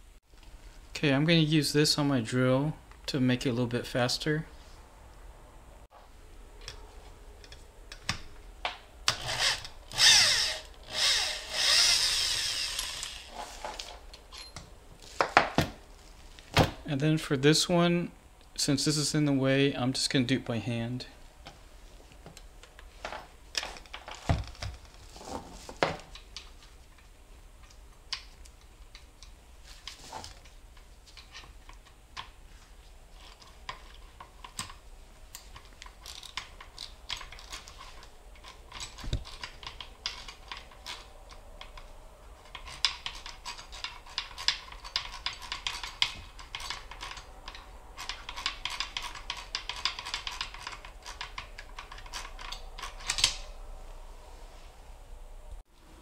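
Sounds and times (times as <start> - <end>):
ratchet wrench clicking: 9.3 - 13.2
metal tools clinking: 14.2 - 14.7.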